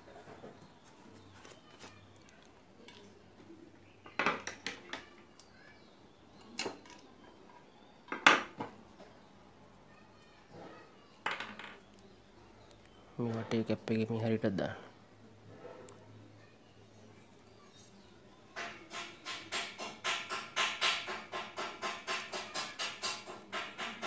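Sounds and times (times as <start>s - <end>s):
clinks and knocks on glass tube: 18.6s - 24.0s.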